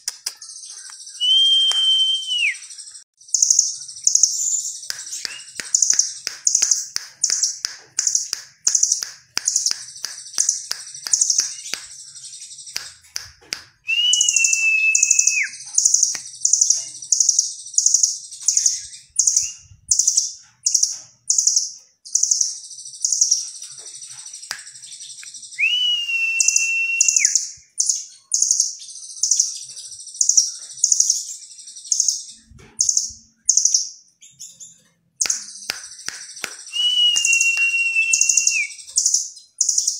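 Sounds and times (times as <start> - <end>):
bird long lower whistles: 1.2 - 2.8, 13.9 - 15.6, 25.5 - 27.5, 36.7 - 38.9
bird high sharp repeated notes: 2.3 - 12.1.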